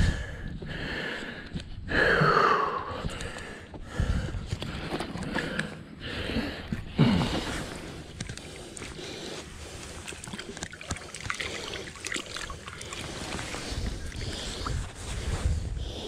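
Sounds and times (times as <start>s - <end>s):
small clicks and scrapes: 8.0s - 9.0s
clothing rustling on microphone: 12.3s - 15.8s
wind on microphone: 13.2s - 16.0s.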